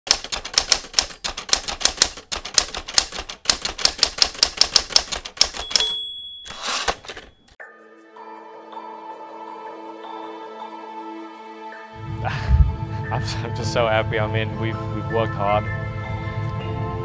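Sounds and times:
typewriter keystroke clacks: 0:00.1 - 0:07.3
typewriter carriage return: 0:00.1 - 0:07.6
typewriter bell ding: 0:04.8 - 0:07.6
soft sustained music: 0:07.6 - 0:17.0.

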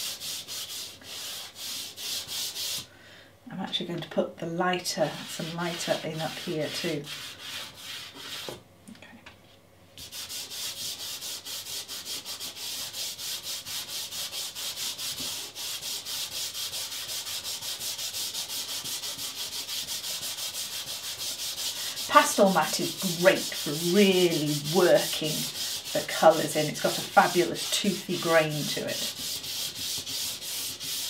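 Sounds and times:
fingers rubbing pastel on paper: 0:05.1 - 0:08.5, 0:10.0 - 0:31.0.

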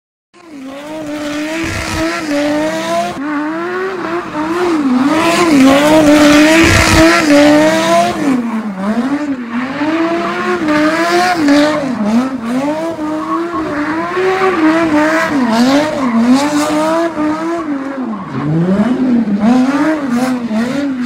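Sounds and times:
car engine revving: 0:00.4 - 0:21.0.

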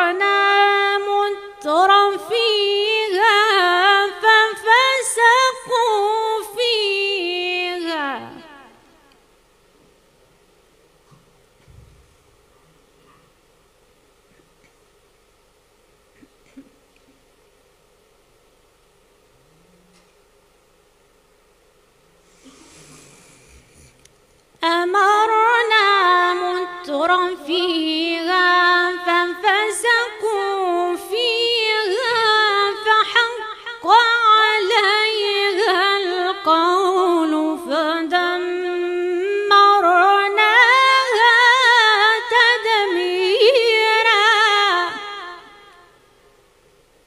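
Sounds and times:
woman reciting melodically: 0:00.0 - 0:09.1, 0:24.6 - 0:46.0.

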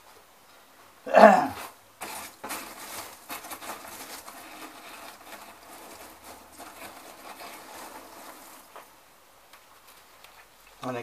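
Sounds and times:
packing material rustling: 0:01.5 - 0:09.0.

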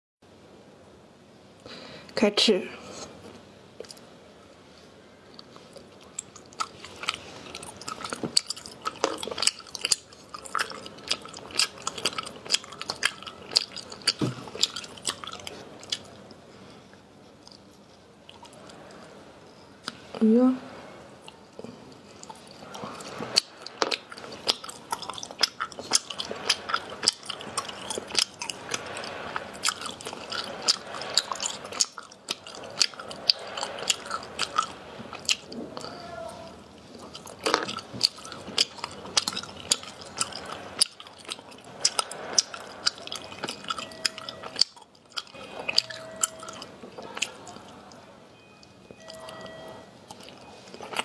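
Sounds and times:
person chewing ice sweets: 0:02.9 - 0:04.1, 0:05.2 - 0:20.3, 0:21.1 - 0:51.0.

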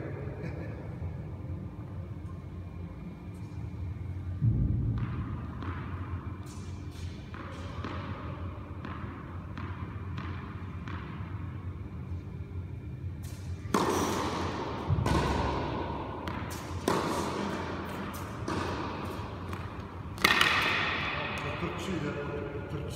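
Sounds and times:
tennis ball bouncing on hard court: 0:04.8 - 0:11.6, 0:13.2 - 0:21.5.

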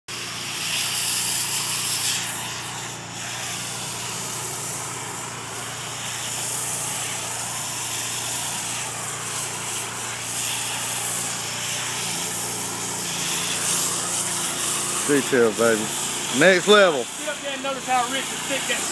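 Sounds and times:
hiss of spray: 0:00.1 - 0:18.9
pressure washer motor hum: 0:00.1 - 0:18.9.

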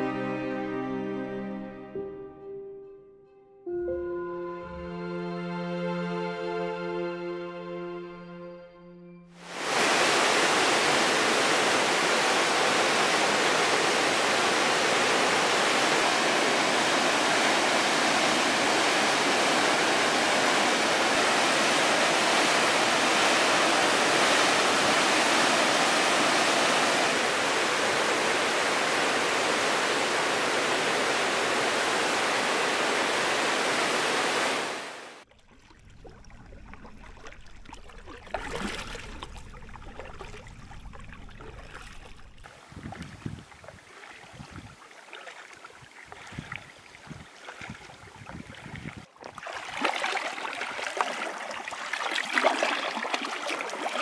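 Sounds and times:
river rapids rushing: 0:09.4 - 0:35.2
paddling on calm water: 0:09.4 - 0:54.0.

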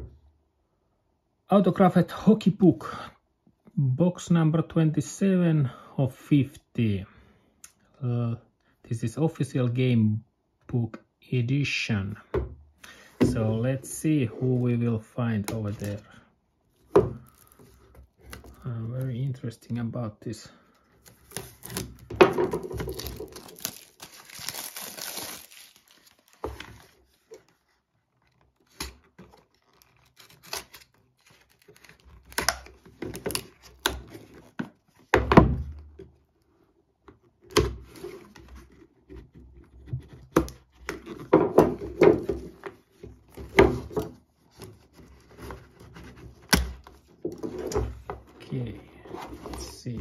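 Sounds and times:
plastic wrap crinkling: 0:17.2 - 0:18.7, 0:21.0 - 0:34.6.

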